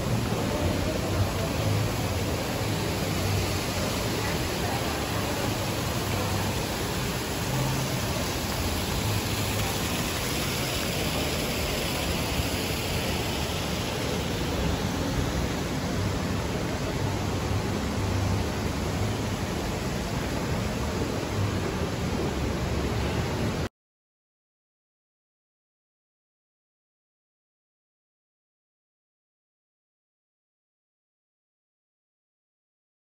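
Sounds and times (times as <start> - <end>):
fountain jets splashing into pool: 0.0 - 23.7.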